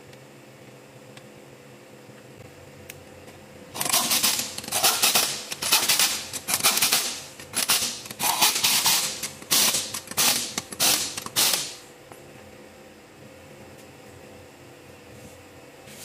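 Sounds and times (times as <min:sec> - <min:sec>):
pneumatic impact wrench bursts: 0:03.8 - 0:11.8.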